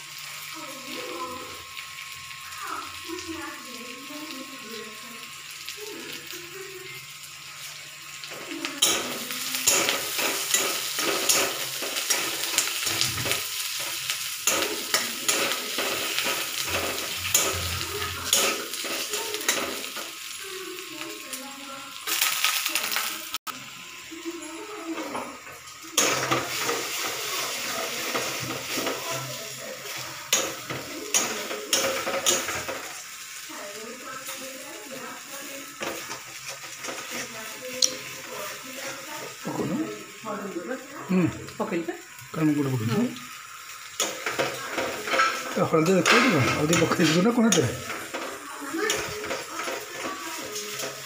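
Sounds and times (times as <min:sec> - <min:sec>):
onions sizzling in oil: 0:00.0 - 0:51.0
spatula scraping and knocking pan: 0:08.8 - 0:20.0.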